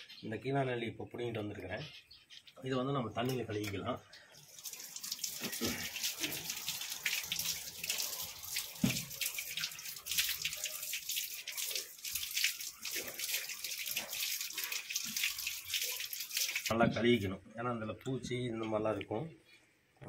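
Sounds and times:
tap water splashing: 4.6 - 17.0.

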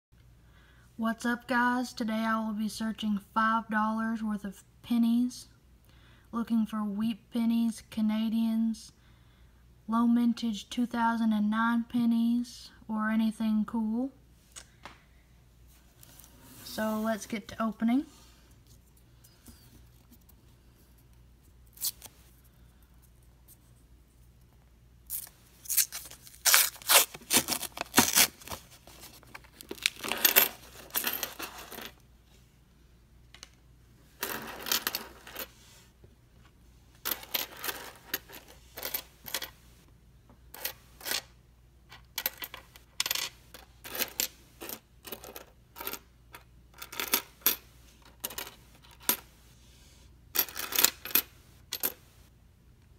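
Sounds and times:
coins clattering on wooden table: 29.7 - 32.0, 34.2 - 35.6, 37.0 - 39.6, 40.5 - 41.3, 41.9 - 49.3, 50.3 - 52.1
coins clinking together: 30.0 - 32.0, 34.2 - 35.5, 50.4 - 52.0.

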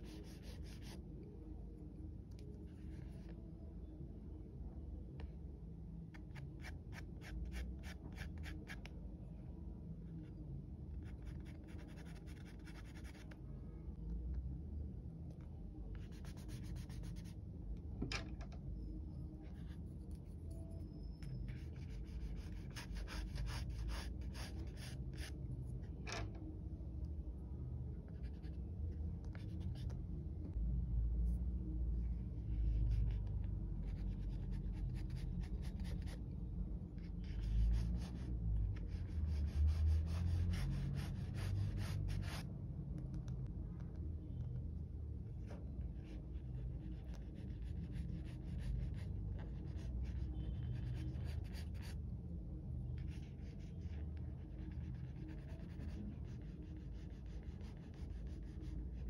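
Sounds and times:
pencil scratching on paper: 0.0 - 1.0, 11.0 - 13.3, 16.0 - 17.4, 21.5 - 25.4, 33.8 - 36.2, 37.0 - 42.5, 46.0 - 52.0, 53.0 - 59.0.

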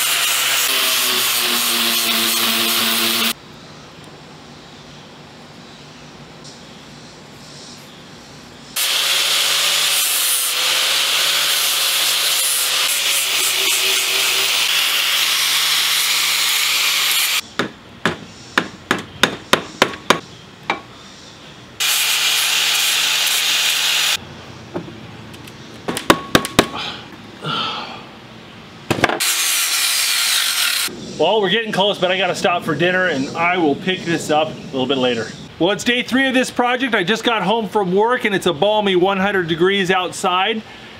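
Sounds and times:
angle grinder sanding wood: 0.0 - 3.4, 8.8 - 17.4, 21.8 - 24.2, 29.2 - 30.9.

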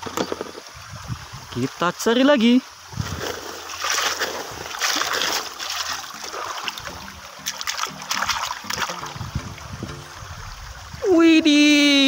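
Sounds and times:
toy splashing in stream water: 3.0 - 9.8.

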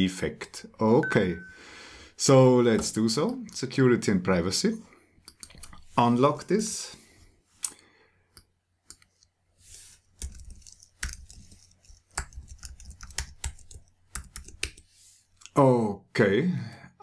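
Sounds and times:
mouse clicking: 10.2 - 14.8.

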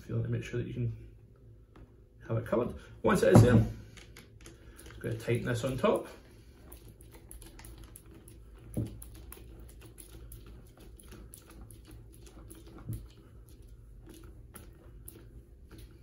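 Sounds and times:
soft thumps: 3.2 - 3.9.

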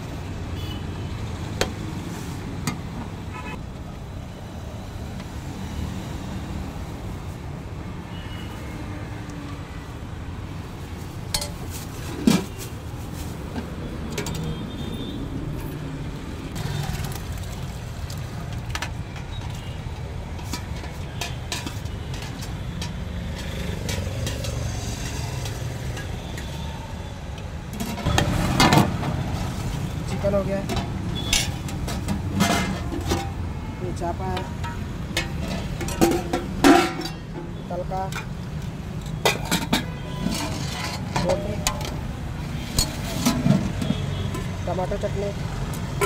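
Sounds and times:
traffic rumble: 0.0 - 46.0
ladle clinking against steel pots: 34.4 - 37.4, 39.1 - 42.0.

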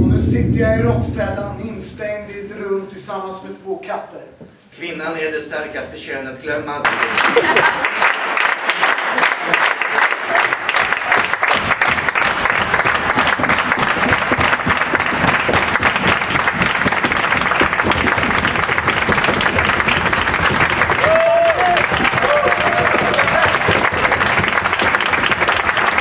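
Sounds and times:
audience applauding: 6.8 - 26.0.

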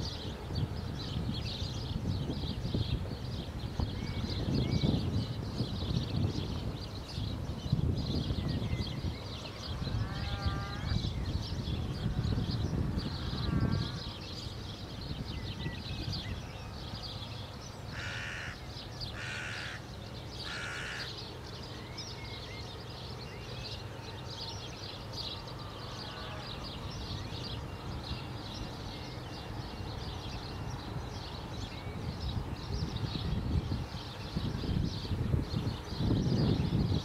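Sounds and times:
songbirds chirping: 0.0 - 37.0
crow cawing: 18.0 - 18.6, 19.2 - 19.8, 20.4 - 21.1.

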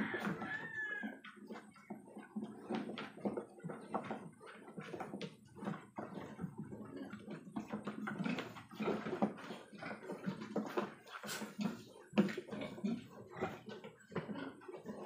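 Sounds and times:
rustles and scrapes in a box: 8.2 - 13.6.

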